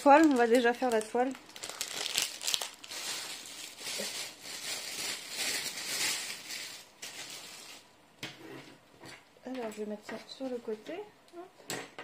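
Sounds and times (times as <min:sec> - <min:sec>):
plastic packaging crinkling: 0:00.0 - 0:07.9.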